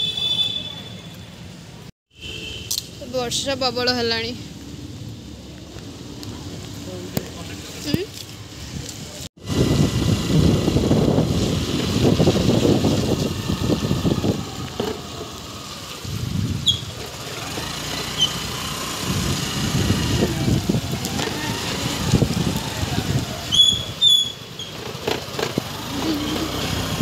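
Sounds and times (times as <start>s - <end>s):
wind buffeting microphone: 8.6s - 15.1s, 16.0s - 17.0s, 18.9s - 24.0s
motorbike engine running: 9.4s - 15.3s, 17.3s - 23.5s, 24.7s - 27.0s.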